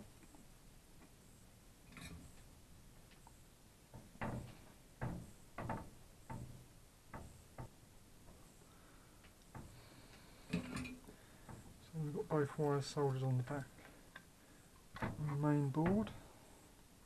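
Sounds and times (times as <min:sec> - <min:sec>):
small knocks and taps: 0:02.4 - 0:08.4.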